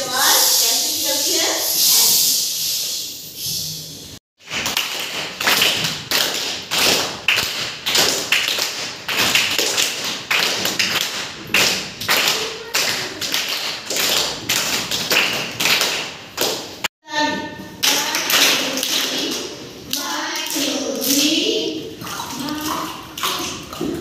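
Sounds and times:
children clapping in unison: 4.4s - 16.9s, 17.8s - 21.5s.

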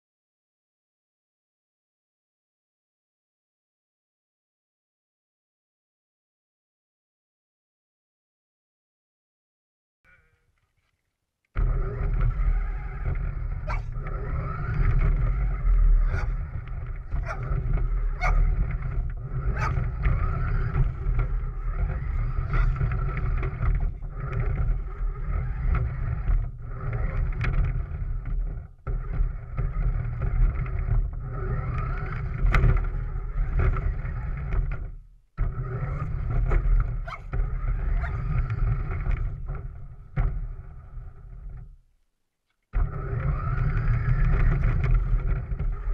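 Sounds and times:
toy car motor whine: 11.6s - 27.8s, 29.2s - 34.5s, 35.5s - 39.2s, 42.8s - 45.9s
wheels rattling over gravel: 11.7s - 28.8s.

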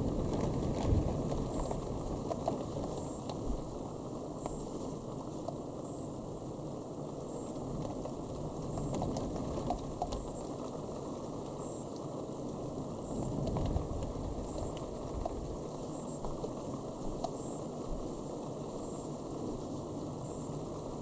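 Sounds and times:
low rumbling thunderstorm: 0.0s - 4.2s, 12.6s - 18.3s
faint small ticks: 0.1s - 3.7s, 4.4s - 6.2s, 7.3s - 21.0s.

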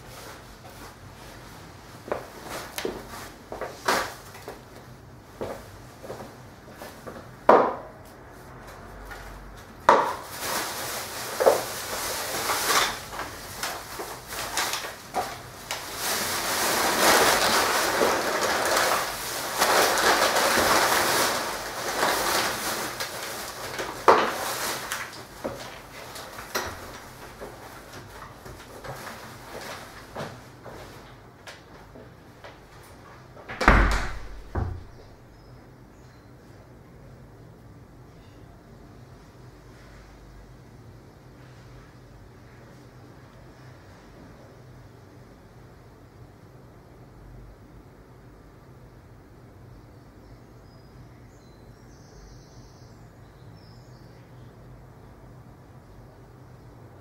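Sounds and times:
footsteps on wooden floor: 5.4s - 7.3s
plastic bin bag rustling: 10.0s - 31.2s.

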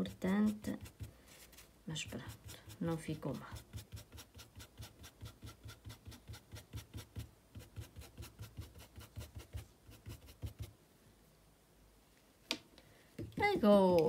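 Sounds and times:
paintbrush brushing on fabric: 0.0s - 10.7s.

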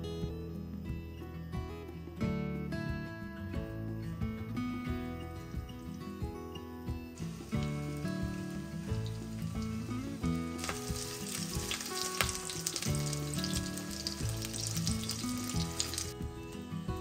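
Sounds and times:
background music: 0.0s - 17.0s
food frying in hot oil: 7.2s - 16.2s.

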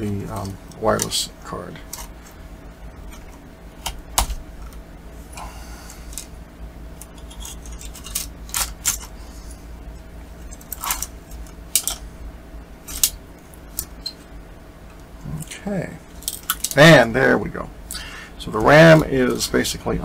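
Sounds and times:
laptop parts clicking and scraping: 7.0s - 9.6s, 10.4s - 12.0s.

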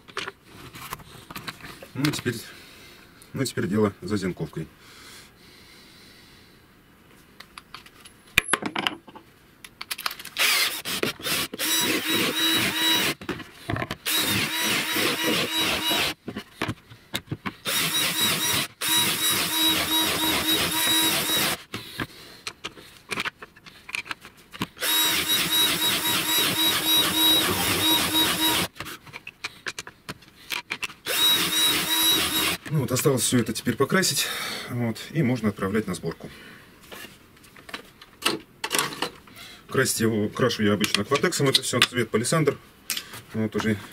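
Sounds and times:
drill cutting into plywood: 10.4s - 13.2s, 14.0s - 16.2s, 17.6s - 21.6s, 24.8s - 28.7s, 31.1s - 32.6s.

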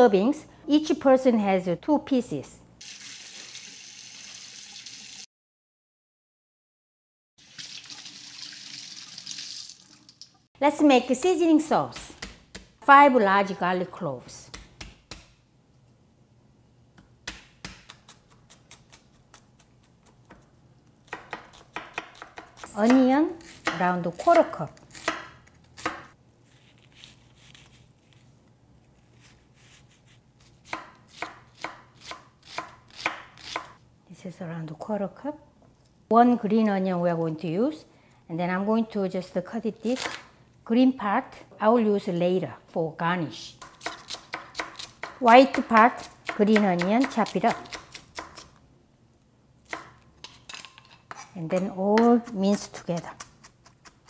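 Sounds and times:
tap water running and splashing: 2.8s - 5.3s, 7.4s - 10.5s
knife slicing onion: 17.0s - 27.9s, 29.2s - 33.8s, 43.6s - 48.6s, 49.6s - 54.0s.

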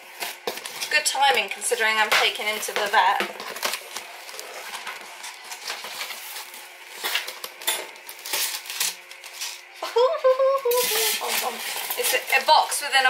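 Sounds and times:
packing crinkling and crackling: 2.5s - 9.8s, 10.7s - 13.0s.

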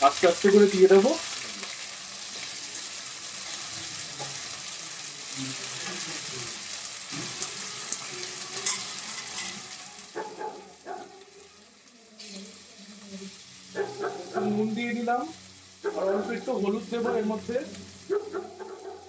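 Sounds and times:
cauliflower sizzling in hot oil: 0.0s - 19.0s
steel spatula scraping pan: 8.4s - 9.9s.

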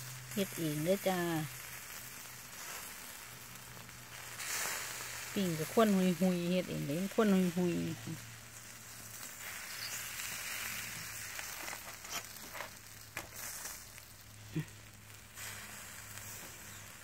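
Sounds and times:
sausages sizzling on grill: 0.0s - 17.0s.

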